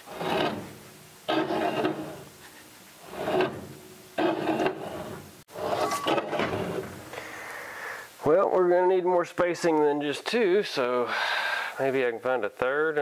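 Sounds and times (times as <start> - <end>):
tire rubbing and scraping: 0.0 - 7.0.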